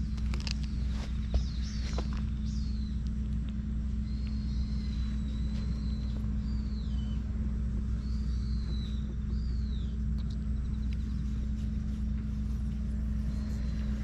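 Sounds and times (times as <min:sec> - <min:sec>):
low outdoor rumble: 0:00.0 - 0:14.0
bird whistling calls: 0:04.0 - 0:07.3, 0:08.0 - 0:10.0.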